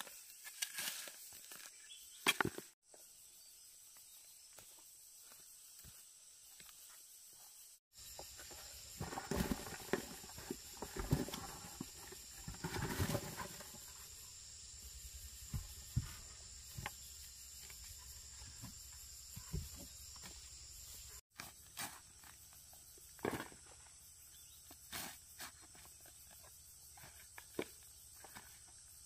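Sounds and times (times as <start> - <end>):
high insect whine: 3.1 - 21.2.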